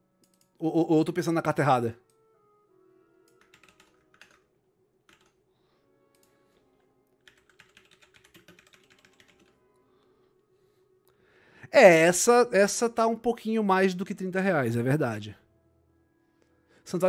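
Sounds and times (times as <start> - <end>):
faint keyboard typing: 0.2 - 0.6, 3.2 - 5.4, 6.1 - 6.4, 7.0 - 9.6.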